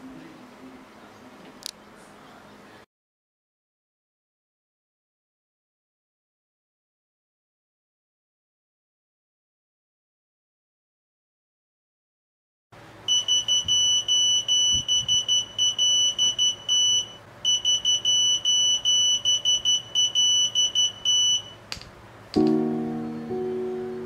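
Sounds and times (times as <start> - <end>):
electronic buzzer beeping: 13.1 - 21.6
piano music: 22.4 - 24.0.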